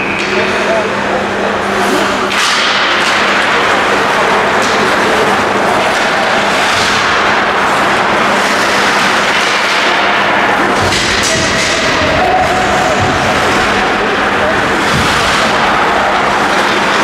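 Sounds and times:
loud wash of rink noise: 1.5s - 17.0s
skates scraping on ice: 3.5s - 17.0s.

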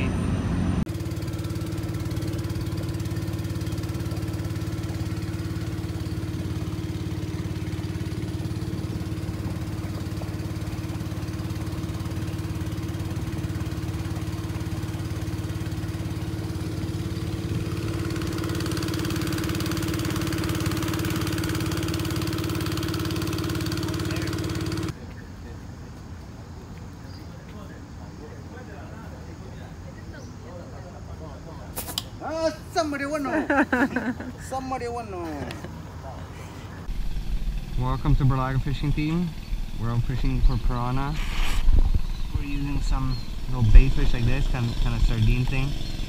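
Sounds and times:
boat motor droning: 0.0s - 25.0s, 32.8s - 46.0s.

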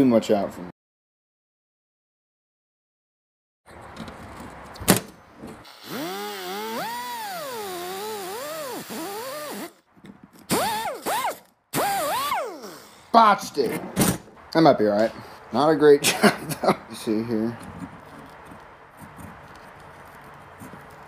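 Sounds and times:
cut-off wheel whining: 5.6s - 9.8s, 10.5s - 13.0s.

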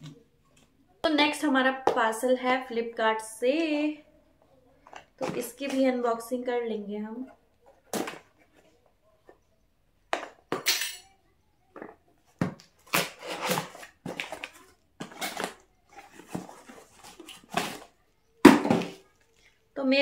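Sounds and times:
cardboard rustling and scraping: 12.3s - 18.0s
packing tape ripping: 12.8s - 15.6s.

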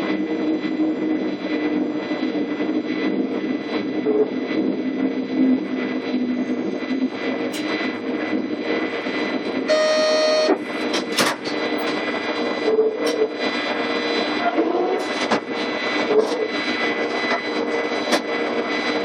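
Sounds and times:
wheels rumbling on rail: 3.0s - 19.0s
electric train motor whine: 5.8s - 19.0s
short electronic tone: 9.7s - 10.6s.

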